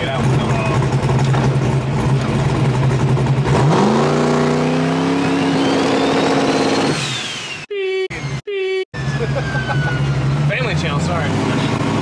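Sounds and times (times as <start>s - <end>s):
car engine revving: 0.0s - 7.6s, 9.0s - 12.0s
turbo whistle: 5.2s - 10.2s.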